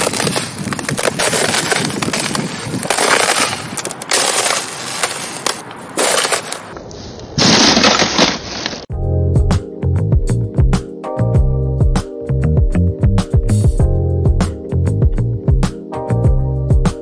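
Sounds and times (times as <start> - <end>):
ice cracking under footsteps: 0.0 - 6.8, 7.4 - 8.9.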